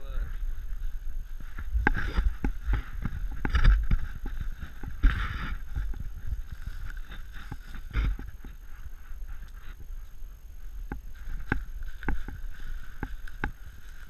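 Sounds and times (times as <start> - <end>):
footsteps crunching dry leaves: 0.0 - 9.8, 10.6 - 14.0.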